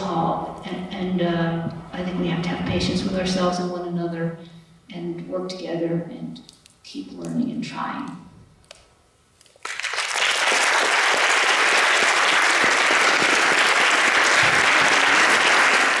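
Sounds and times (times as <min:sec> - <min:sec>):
audience applause: 0:09.6 - 0:16.0.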